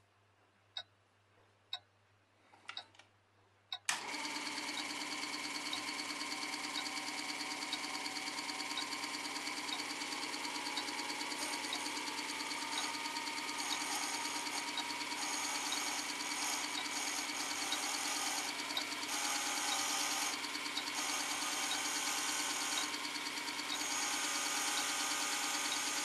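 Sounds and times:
small electric motor running: 3.9 - 26.0.

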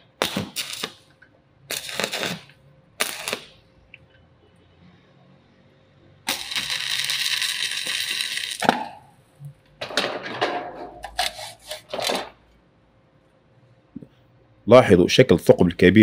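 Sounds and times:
welding arc crackling and hissing: 0.0 - 3.6, 6.3 - 9.1
knocks and clattering scrapes: 9.8 - 12.5.

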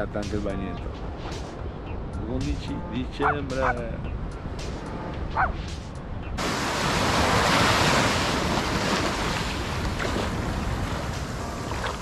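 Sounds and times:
sea waves washing onto shore: 6.4 - 12.0.

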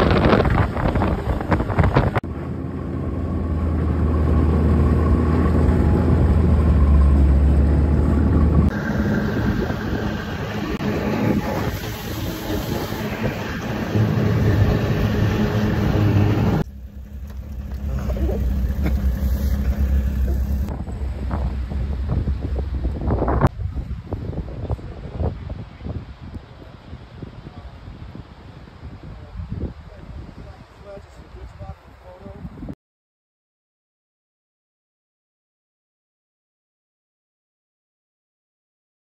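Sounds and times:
snowmobile engine droning: 0.2 - 23.5.

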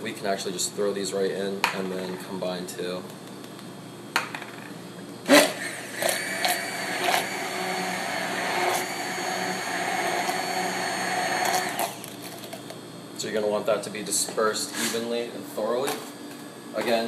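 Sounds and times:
immersion blender running: 5.3 - 12.2.

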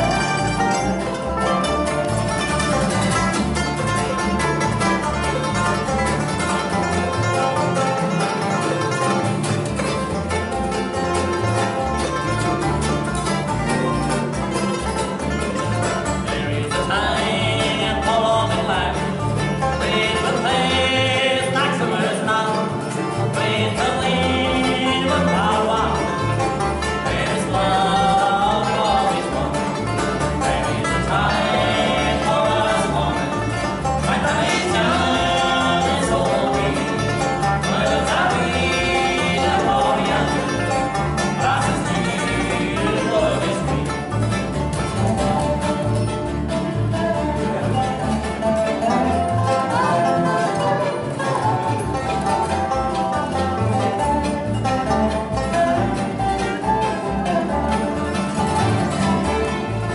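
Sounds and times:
acoustic guitars: 0.0 - 59.9
banjo: 0.0 - 59.9
fiddle: 0.0 - 59.9
upright bass: 0.0 - 59.9
person singing: 16.2 - 44.4.

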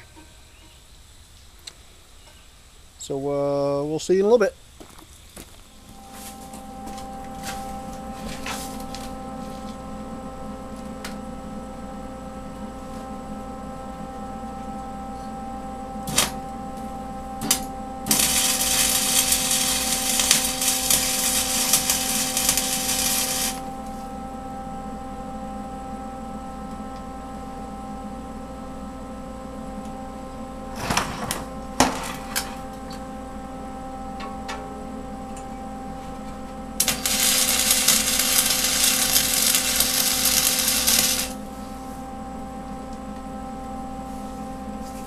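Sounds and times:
steady electrical hum: 0.0 - 45.0
arc welding crackle: 4.8 - 9.8, 16.0 - 16.5, 17.4 - 24.2, 36.8 - 41.5.

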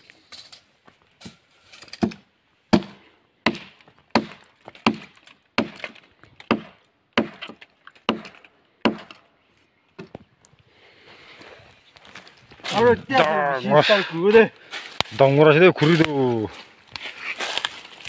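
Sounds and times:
machete chopping into log: 2.0 - 9.2.

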